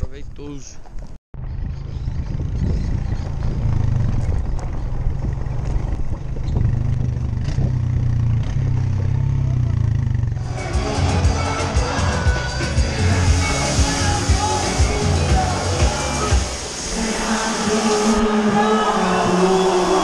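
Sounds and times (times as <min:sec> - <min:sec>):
truck engine droning: 0:01.4 - 0:20.0
music: 0:10.4 - 0:19.8.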